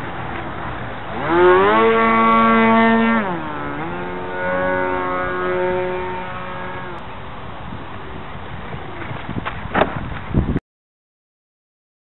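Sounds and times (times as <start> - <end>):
model plane motor and propeller: 0.0 - 7.0.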